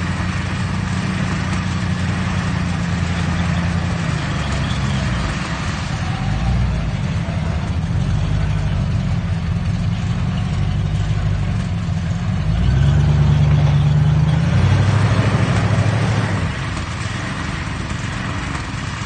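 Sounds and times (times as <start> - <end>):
pickup truck engine revving: 0.0 - 19.0.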